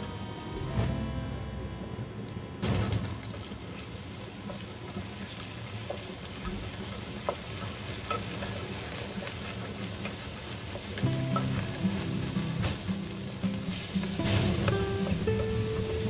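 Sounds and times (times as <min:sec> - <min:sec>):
bean paste sizzling in oil: 0:03.3 - 0:16.0.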